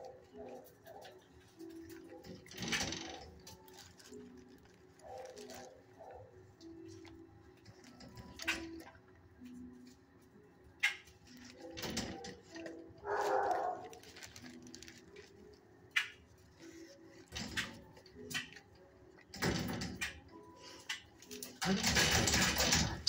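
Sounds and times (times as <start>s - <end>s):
dog barking: 0.0s - 1.2s, 5.0s - 6.4s, 13.0s - 14.0s
sharp clicks and knocks: 19.2s - 23.0s.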